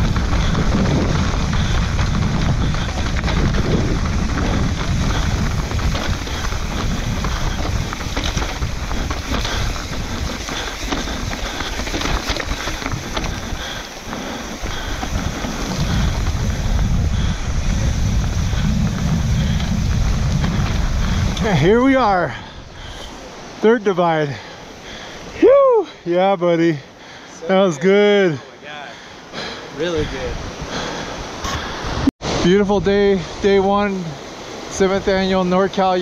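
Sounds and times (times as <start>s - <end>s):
bike tyres rolling on dirt: 0.0s - 25.9s
wind rushing over microphone: 0.0s - 25.9s, 29.4s - 36.0s.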